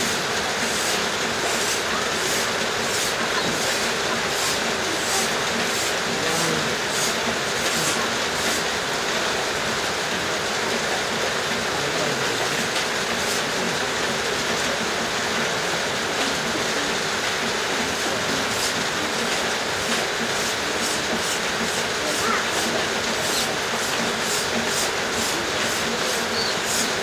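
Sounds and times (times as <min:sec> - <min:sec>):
steady hiss: 0:16.1 - 0:27.0.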